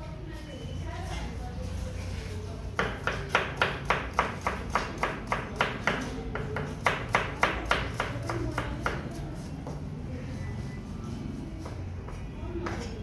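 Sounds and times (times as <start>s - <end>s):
knife chopping on plastic board: 2.8s - 9.1s.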